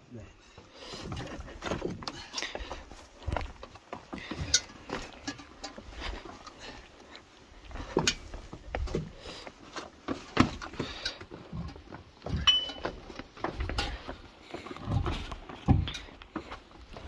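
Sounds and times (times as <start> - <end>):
footsteps scrambling over rock: 0.5 - 17.0
short metallic ring: 12.4 - 12.8.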